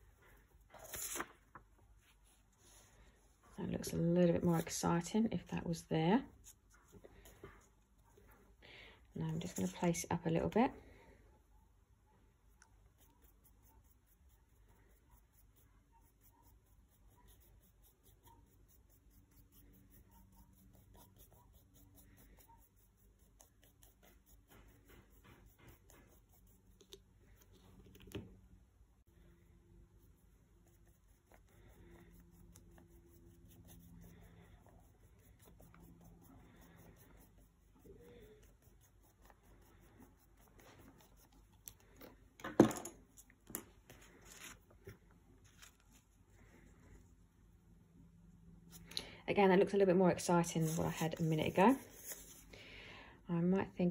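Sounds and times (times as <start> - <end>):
paper rustling: 0.6 - 3.0, 43.1 - 46.3, 50.6 - 52.5
colouring tool scratching paper: 12.5 - 27.6, 29.8 - 42.0, 50.4 - 52.4.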